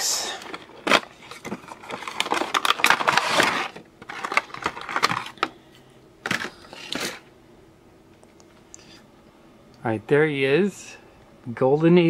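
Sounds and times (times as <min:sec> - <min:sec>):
plastic packaging crinkling: 0:00.3 - 0:05.6, 0:06.2 - 0:07.2.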